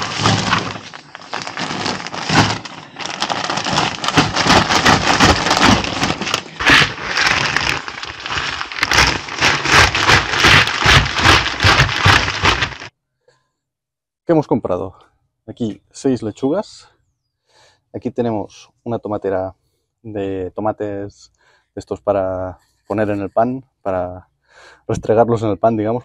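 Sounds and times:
plastic sack crinkling: 0.0s - 12.9s.

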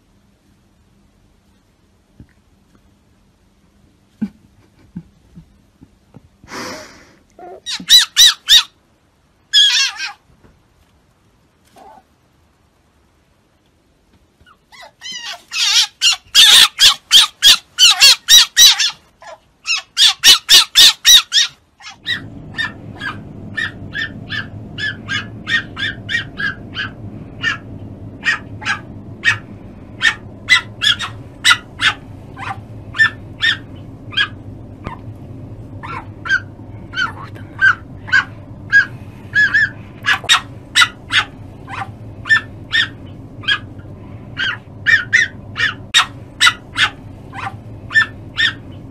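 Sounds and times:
steady low hum: 0.0s - 9.5s, 15.4s - 48.9s
fox shrill chattering: 7.5s - 8.7s, 9.5s - 10.2s, 14.8s - 27.6s, 28.2s - 29.4s, 30.0s - 35.0s, 35.8s - 43.7s, 44.4s - 48.6s.

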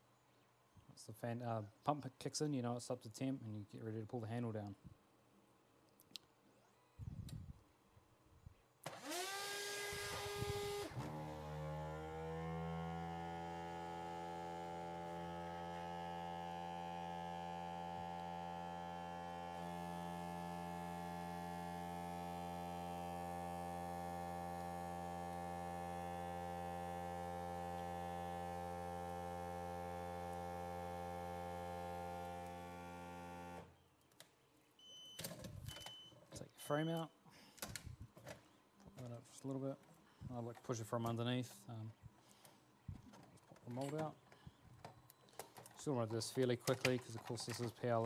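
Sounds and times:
vacuum pump humming: 8.9s - 33.8s.

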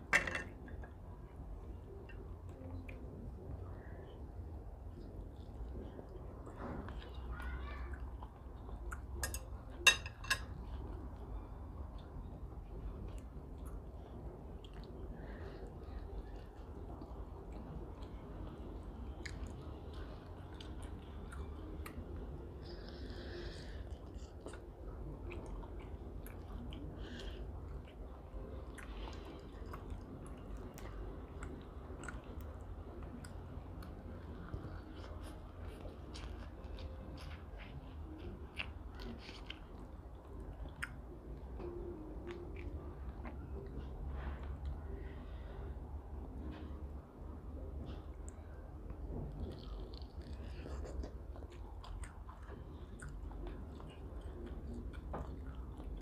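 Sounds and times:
steady low hum: 0.0s - 56.0s
person chewing and mouth smacks: 10.4s - 45.5s, 47.6s - 56.0s.

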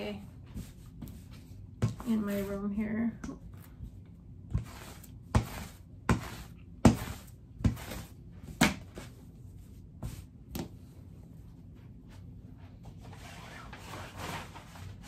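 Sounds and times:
lint roller rolling over fabric: 4.5s - 8.2s, 12.8s - 15.0s.

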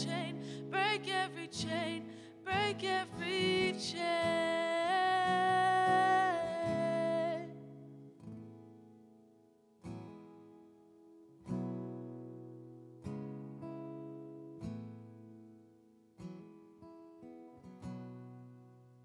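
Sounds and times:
person singing with vibrato: 0.0s - 7.6s
acoustic guitar: 0.0s - 19.0s.

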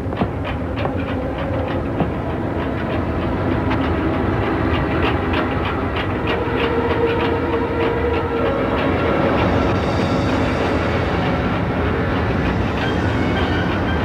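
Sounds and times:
steady rumble: 0.0s - 14.0s.

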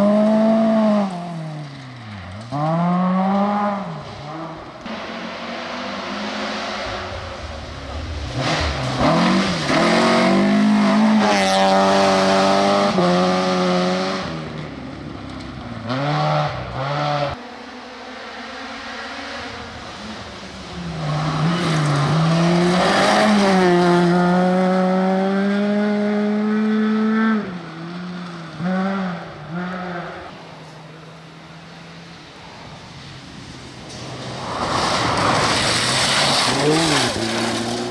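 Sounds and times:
rally car engine revving: 0.0s - 30.4s, 33.9s - 37.9s.

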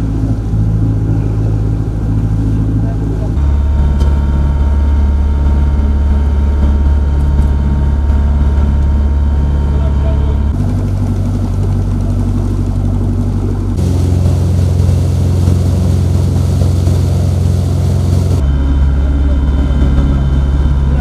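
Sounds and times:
boat engine humming: 0.0s - 21.0s
water rushing in wake: 0.0s - 21.0s.

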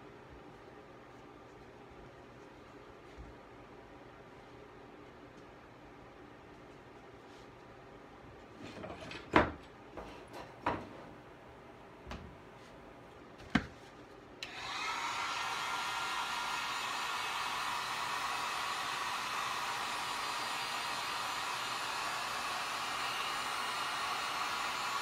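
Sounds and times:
knocks and clatters on workbench: 8.7s - 11.1s
heat gun blowing hiss: 14.4s - 25.0s.

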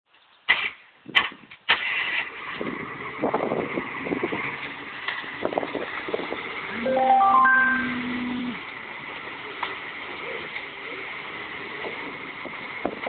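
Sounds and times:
truck engine running: 7.8s - 13.0s.

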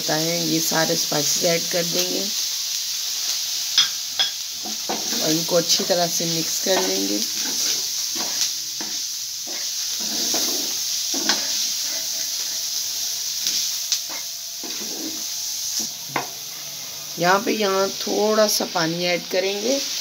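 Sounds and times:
meat sizzling on a pan: 0.0s - 20.0s
wooden spatula scraping: 6.7s - 12.6s, 14.1s - 16.6s.

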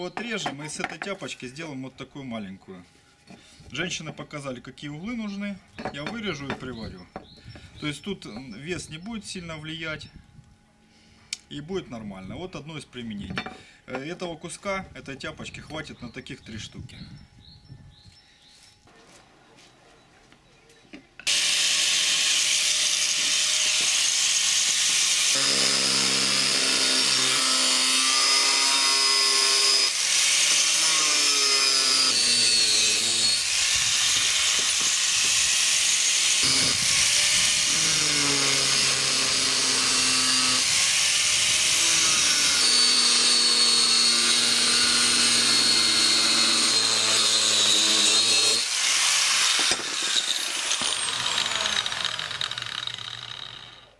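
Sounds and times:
angle grinder cutting steel: 21.3s - 53.9s.

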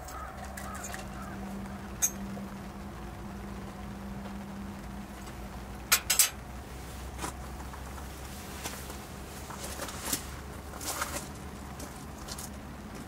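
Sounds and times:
footsteps on gravel: 7.1s - 13.0s.

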